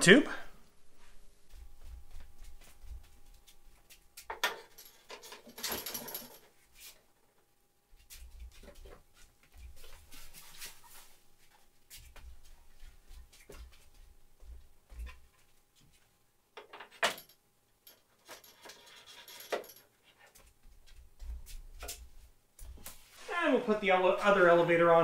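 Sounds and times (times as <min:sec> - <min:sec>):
footsteps: 0:00.9 - 0:04.3, 0:08.0 - 0:16.1.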